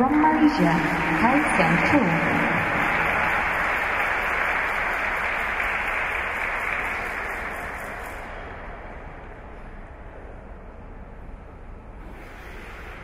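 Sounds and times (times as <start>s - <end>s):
spectators applauding: 0.0s - 8.4s.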